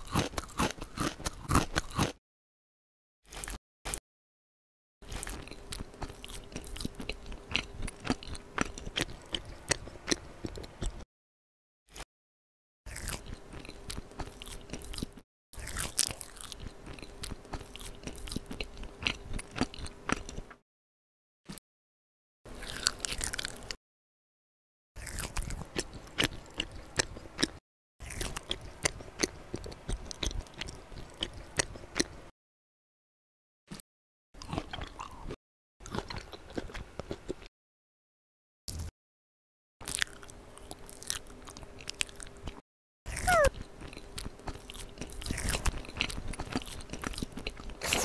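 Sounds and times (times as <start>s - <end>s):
crunchy chewing and biting: 0.0s - 2.2s, 3.2s - 4.0s, 5.0s - 11.0s, 12.9s - 20.6s, 22.5s - 23.8s, 25.0s - 32.2s, 34.4s - 37.5s, 39.8s - 48.0s
squishy chewing: 39.8s - 48.0s.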